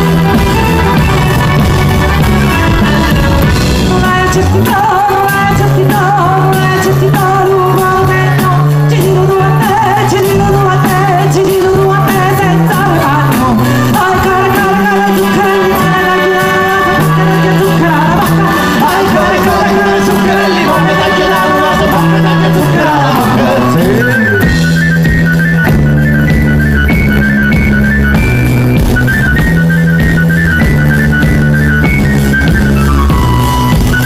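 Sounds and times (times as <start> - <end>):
bass guitar: 0.0 - 34.0
drum kit beat: 0.0 - 34.0
electric guitars: 0.0 - 34.0
woman singing lead: 2.8 - 24.7.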